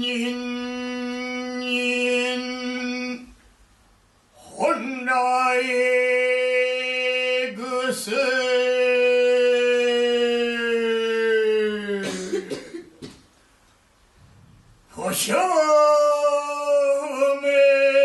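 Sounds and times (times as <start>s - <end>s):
man chanting long syllable: 0.0s - 3.3s, 4.4s - 12.2s, 14.9s - 18.0s.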